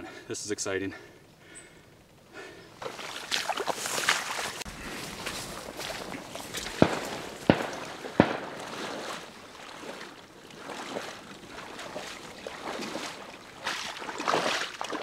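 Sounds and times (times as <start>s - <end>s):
water sloshing around waders: 2.4s - 15.0s
shotgun shots: 6.7s - 8.9s.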